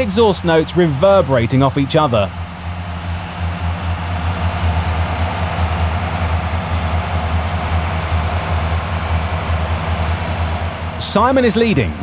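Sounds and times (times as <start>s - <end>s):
tractor diesel engines droning: 0.0s - 12.0s.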